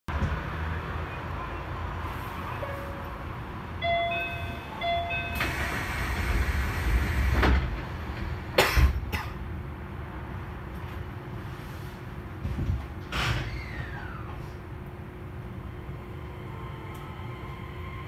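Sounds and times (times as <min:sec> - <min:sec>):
electronic door chime: 0:03.8 - 0:05.5
sliding doors thudding shut: 0:05.3 - 0:09.1, 0:12.4 - 0:14.5.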